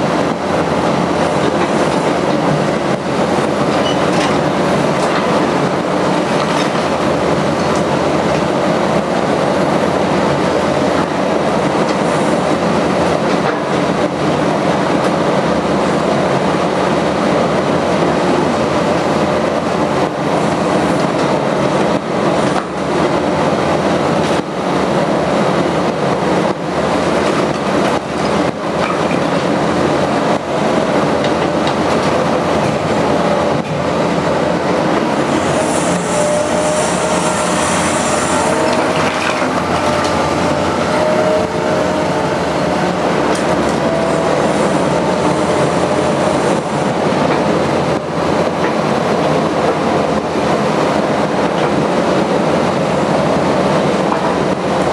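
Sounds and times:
excavator diesel engine: 0:00.0 - 0:54.9
hydraulic whine: 0:30.4 - 0:48.0
high metallic squeal: 0:35.3 - 0:46.6.

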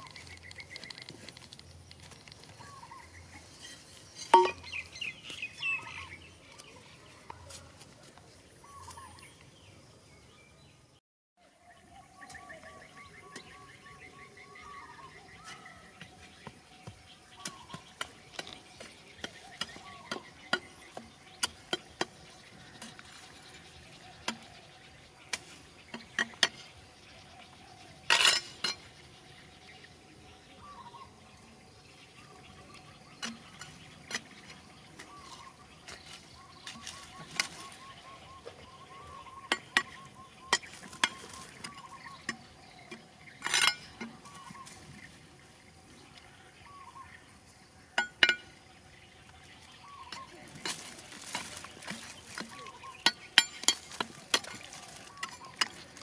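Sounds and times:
hand pick striking clay and rock: 0:04.2 - 0:04.8, 0:16.8 - 0:23.1, 0:48.0 - 0:48.6, 0:50.1 - 0:56.0.

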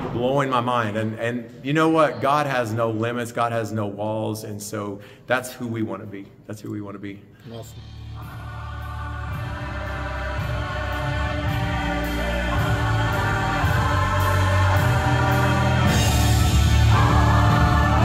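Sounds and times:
gospel choir singing: 0:07.7 - 0:18.0.

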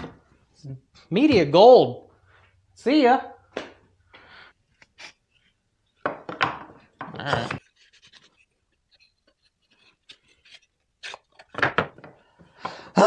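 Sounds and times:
sharp wooden knocks: 0:06.0 - 0:07.6.

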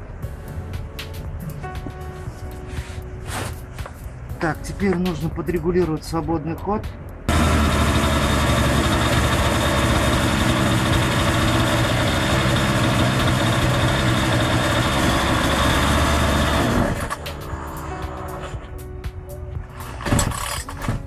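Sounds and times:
chainsaw engine idling: 0:07.3 - 0:17.2.

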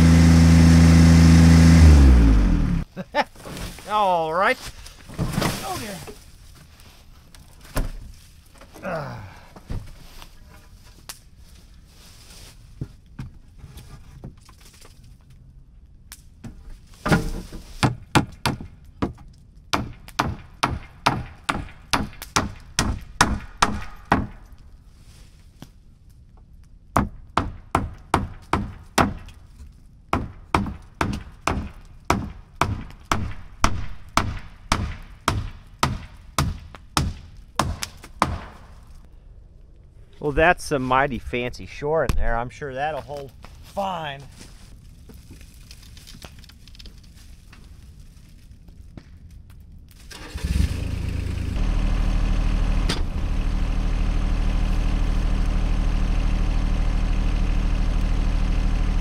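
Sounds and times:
hammer driving nails into wood: 0:19.7 - 0:24.4, 0:30.2 - 0:38.6.

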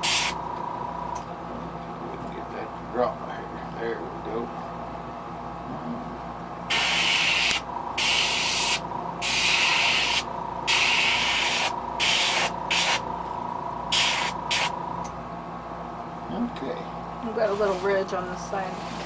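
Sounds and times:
airbrush hissing in short bursts: 0:00.0 - 0:00.4, 0:06.7 - 0:13.1, 0:13.9 - 0:14.8.

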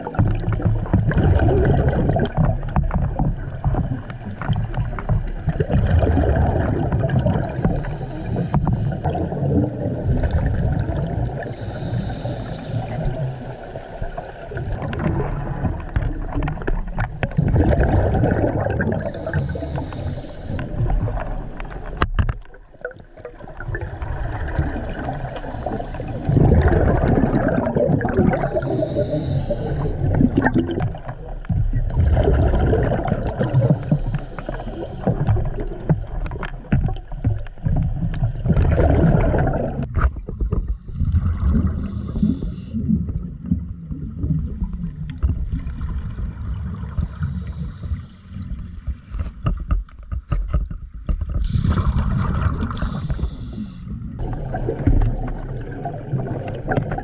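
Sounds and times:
exhaled bubbles rumbling: 0:00.0 - 0:57.0
regulator hissing in-breath: 0:07.4 - 0:09.1, 0:11.4 - 0:14.4, 0:19.0 - 0:20.8, 0:24.9 - 0:26.4, 0:28.4 - 0:30.0, 0:33.2 - 0:35.3, 0:41.8 - 0:42.8, 0:47.0 - 0:48.4, 0:52.7 - 0:54.0.

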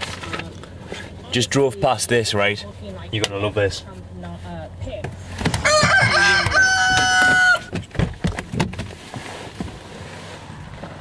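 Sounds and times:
rooster crowing: 0:05.6 - 0:07.7.

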